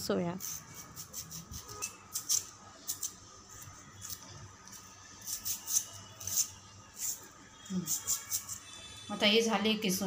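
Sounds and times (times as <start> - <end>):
peeler scraping cucumber skin: 0.4 - 3.2, 4.0 - 8.6.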